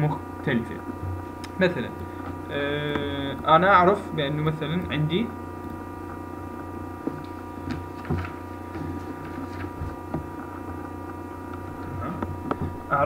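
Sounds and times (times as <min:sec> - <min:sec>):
electrical mains hum: 0:00.0 - 0:13.0
paper rustling: 0:07.1 - 0:10.6.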